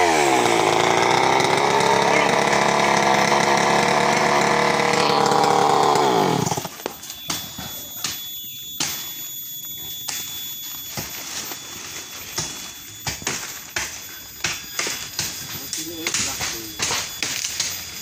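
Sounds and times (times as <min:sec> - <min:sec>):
chainsaw engine winding down: 0:00.0 - 0:06.8.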